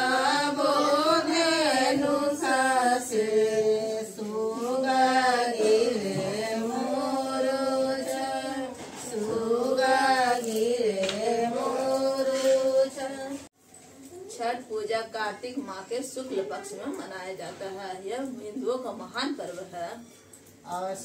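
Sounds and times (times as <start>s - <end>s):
person singing devotional song: 0.0s - 13.5s.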